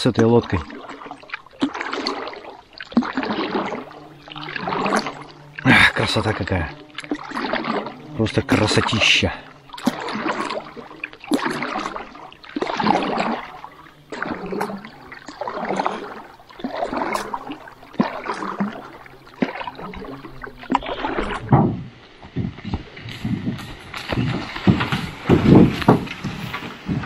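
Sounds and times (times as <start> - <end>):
paddle strokes swishing in water: 0.0 - 27.0
small knocks: 21.4 - 27.0.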